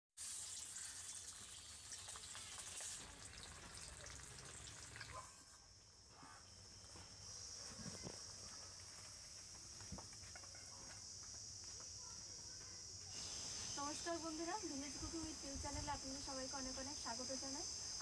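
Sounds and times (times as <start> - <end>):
fish sizzling in hot oil: 0.2 - 5.2.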